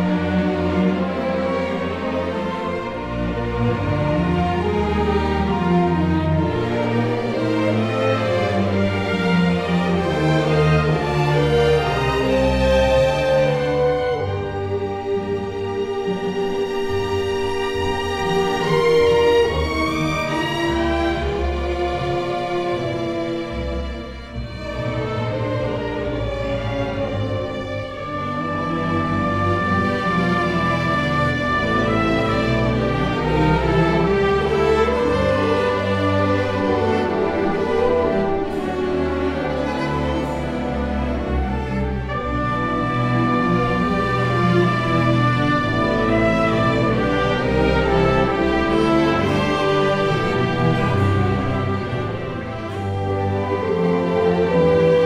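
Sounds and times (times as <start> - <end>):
orchestral sustained chords: 0.0 - 55.0.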